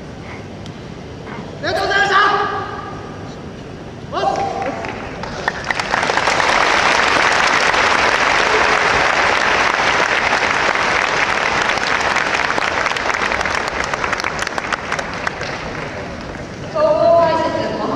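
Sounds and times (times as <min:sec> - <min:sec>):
audience applauding: 0:04.4 - 0:16.5.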